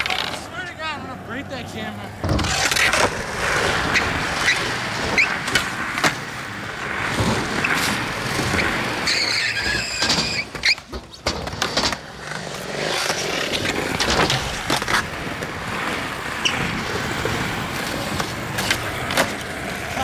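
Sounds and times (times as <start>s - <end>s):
skateboard clacks: 0.0s - 0.8s, 2.0s - 20.0s
skateboard wheels rolling on concrete: 0.0s - 20.0s
high squeal: 9.0s - 10.8s.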